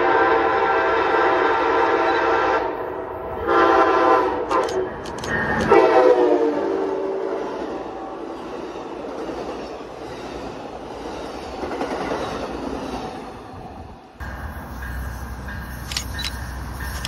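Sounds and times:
train horn: 0.0s - 4.9s, 5.6s - 8.3s
train wheels clacking on rails: 14.2s - 17.0s.

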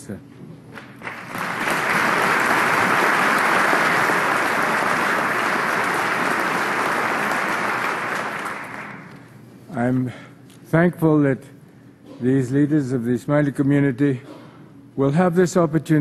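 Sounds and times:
audience applauding: 0.8s - 9.3s.

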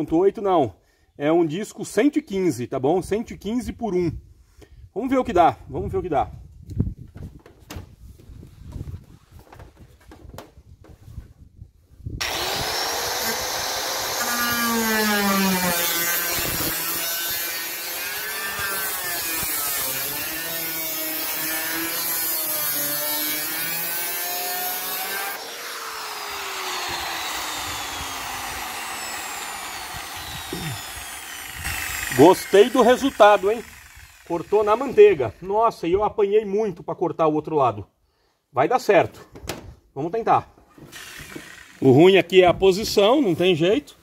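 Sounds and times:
circular saw cutting sheet metal: 12.2s - 35.5s.

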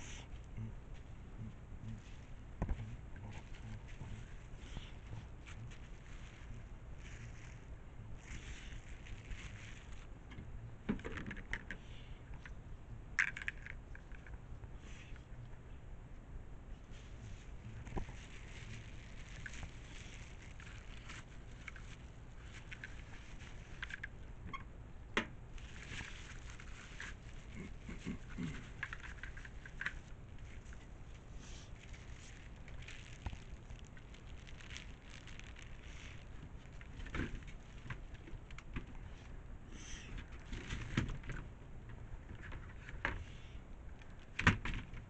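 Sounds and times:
plastic bag crinkling: 1.8s - 10.2s, 16.9s - 24.4s, 25.5s - 39.2s
plastic wrap rustling: 1.8s - 10.2s, 16.9s - 24.4s, 25.5s - 39.3s
plastic parts clicking and clattering: 28.6s - 30.7s.

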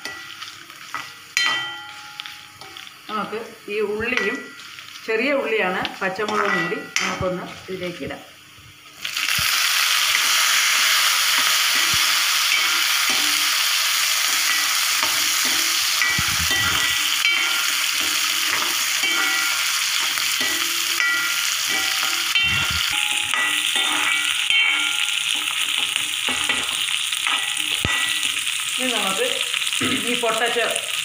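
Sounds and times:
spoon scraping and clinking on pan: 0.0s - 2.9s, 6.2s - 7.3s, 11.4s - 13.5s, 14.2s - 28.5s
shallots sizzling in hot oil: 0.0s - 31.0s.

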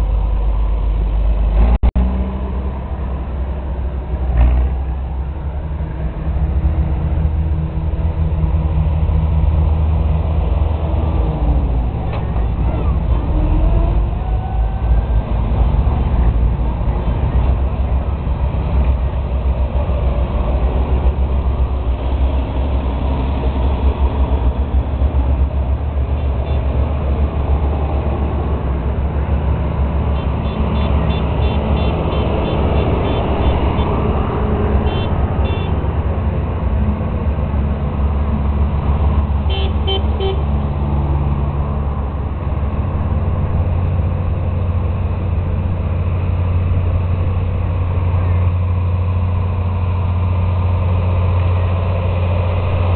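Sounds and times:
tractor engines droning: 0.0s - 52.9s
horn tooting: 30.1s - 34.0s, 34.8s - 35.8s, 39.5s - 40.5s.

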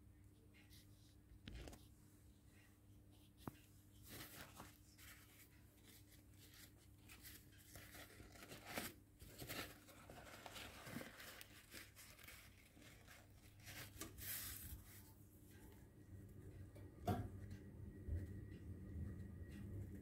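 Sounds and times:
paper towel rustling: 3.9s - 15.1s.

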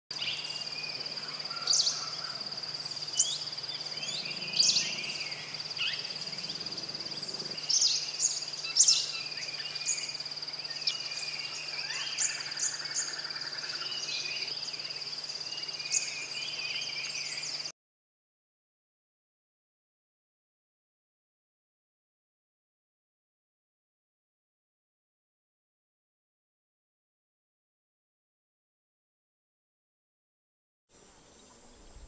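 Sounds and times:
steady high-pitched drone: 0.1s - 17.7s
bird giving sharp high notes: 0.2s - 14.8s.

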